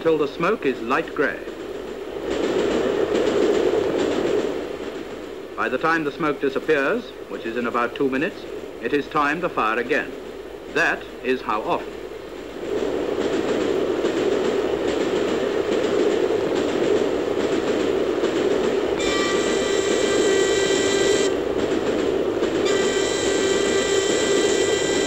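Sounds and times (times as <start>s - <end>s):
steam locomotive rushing: 0.0s - 25.0s
steam whistle blast: 19.0s - 21.4s, 22.6s - 25.0s.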